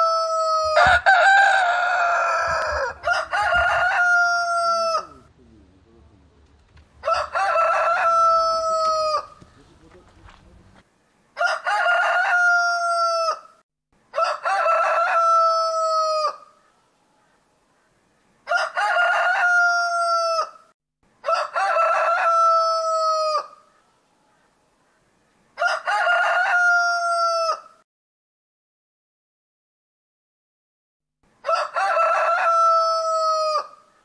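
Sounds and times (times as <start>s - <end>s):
rooster crowing: 0.0s - 5.3s, 7.0s - 9.4s, 11.4s - 16.5s, 18.5s - 20.6s, 21.2s - 23.6s, 25.6s - 27.8s, 31.4s - 33.8s.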